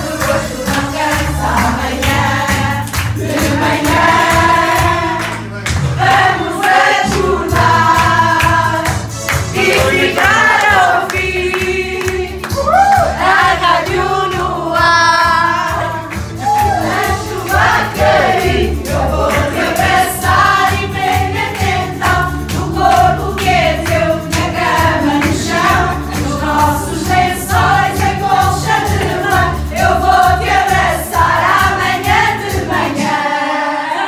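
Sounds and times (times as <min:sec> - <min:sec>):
voices singing together: 0:00.0 - 0:34.0
steady bass beat: 0:07.1 - 0:32.7.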